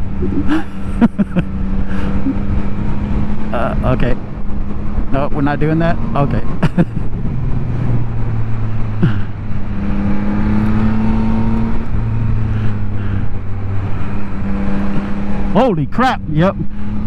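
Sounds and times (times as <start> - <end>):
motorcycle engine running: 0.0 - 5.0.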